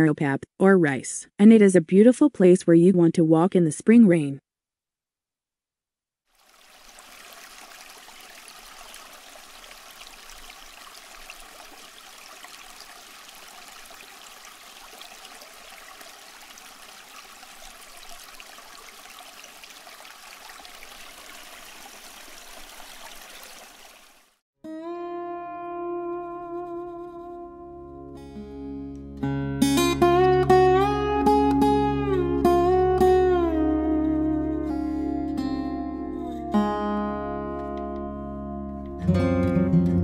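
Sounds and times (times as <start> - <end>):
running water rushing: 6.3 - 24.4.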